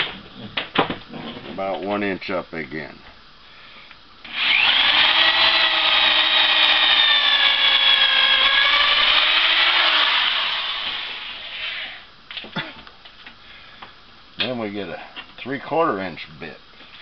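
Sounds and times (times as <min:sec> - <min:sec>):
electric drill boring through wood: 0:04.3 - 0:12.1.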